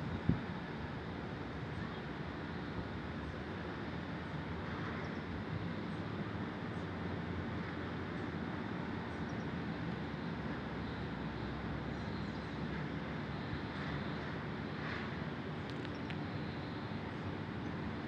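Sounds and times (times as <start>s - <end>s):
distant traffic rumble: 0.0s - 18.0s
light ticks: 15.7s - 16.2s.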